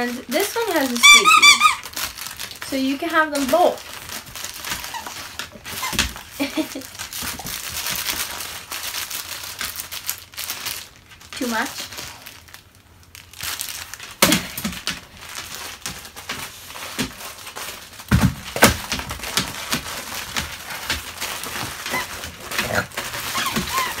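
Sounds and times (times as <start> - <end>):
crinkling and rustling: 0.0 - 24.0
knocks and thumps: 18.1 - 21.1.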